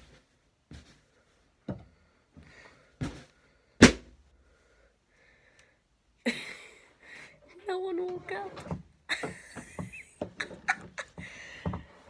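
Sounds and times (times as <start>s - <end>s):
balloon bursting: 3.8s - 4.1s.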